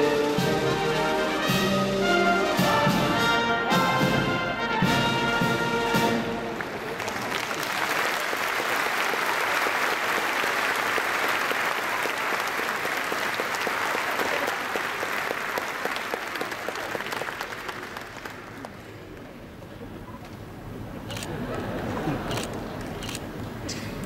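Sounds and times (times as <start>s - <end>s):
audience applauding: 6.4s - 19.2s.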